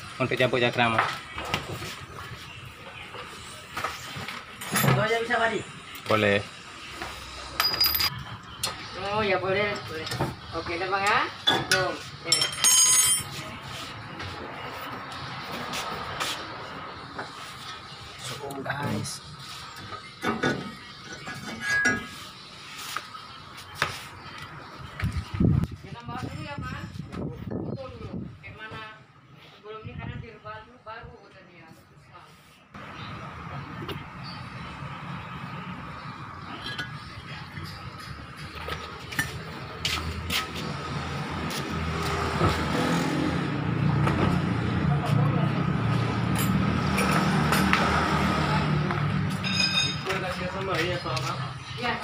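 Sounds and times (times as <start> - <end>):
metal tools clinking: 7.6 - 8.2, 11.6 - 13.4, 21.0 - 22.2, 49.4 - 50.2.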